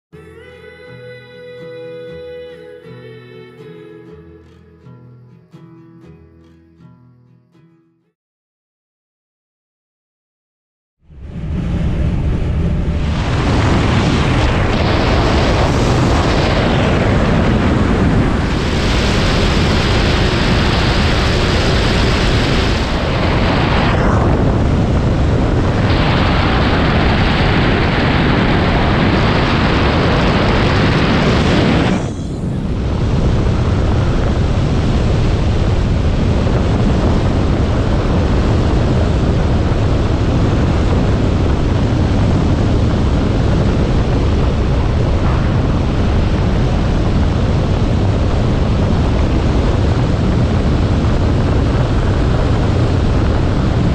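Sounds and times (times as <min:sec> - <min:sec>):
wind rushing over canopy: 0:11.0 - 0:53.9.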